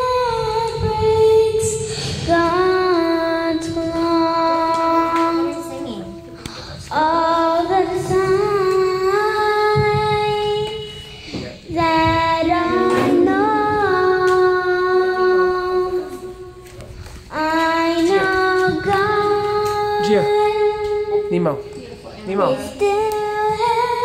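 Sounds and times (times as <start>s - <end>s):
high voice singing long notes: 11.8s - 16.5s.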